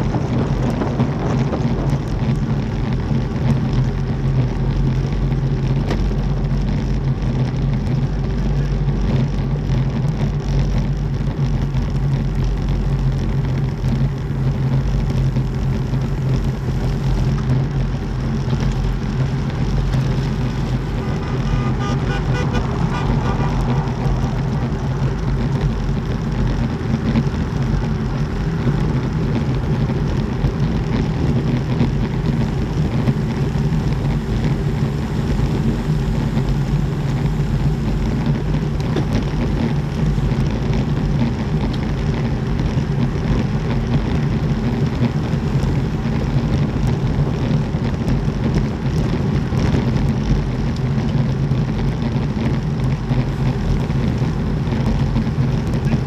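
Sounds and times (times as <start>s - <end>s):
wind buffeting microphone: 0.0s - 6.4s
bike tyres rumbling on brick paving: 0.0s - 56.0s.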